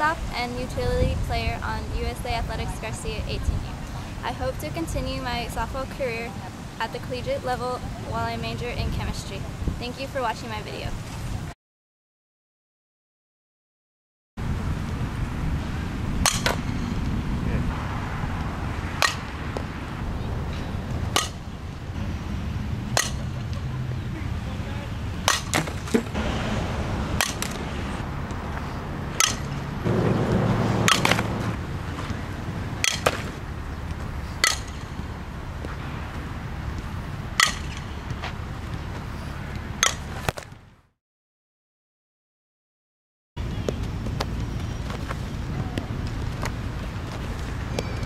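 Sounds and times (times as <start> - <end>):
bat cracking against ball: 16.2 - 17.1, 18.9 - 19.8, 21.0 - 21.5, 22.9 - 23.6, 25.2 - 26.2, 27.1 - 28.4, 29.1 - 35.8, 37.4 - 38.4, 39.8 - 40.6.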